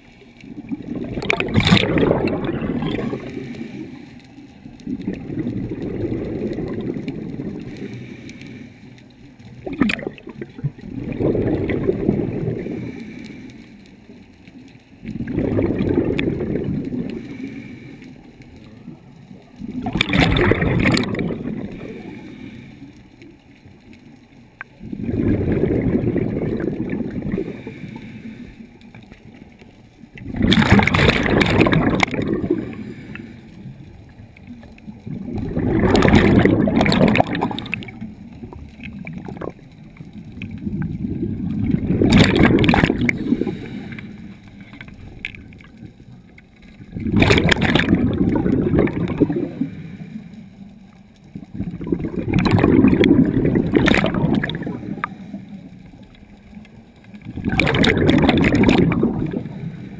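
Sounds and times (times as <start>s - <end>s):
underwater bubbling: 0.0s - 59.9s
scuba breathing through regulator: 7.6s - 9.0s, 12.4s - 13.8s, 16.4s - 18.3s, 21.6s - 23.1s, 25.0s - 28.8s, 31.9s - 33.6s, 42.4s - 44.7s, 49.2s - 50.5s.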